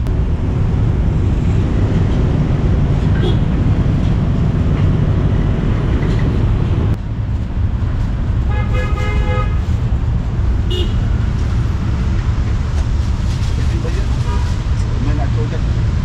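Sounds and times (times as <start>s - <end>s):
street traffic rumble: 0.0s - 16.0s
vehicle horn: 3.2s - 3.5s, 8.5s - 9.7s, 10.7s - 11.0s.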